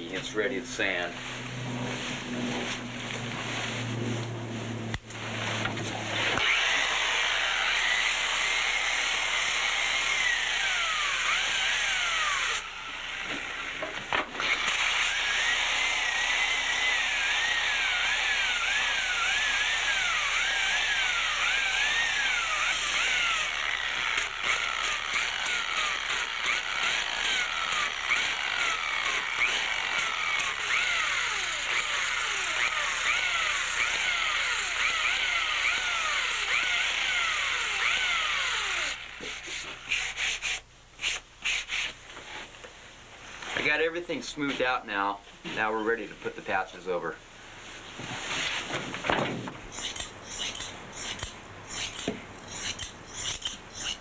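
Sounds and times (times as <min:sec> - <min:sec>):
power sander: 0:00.1 - 0:40.6.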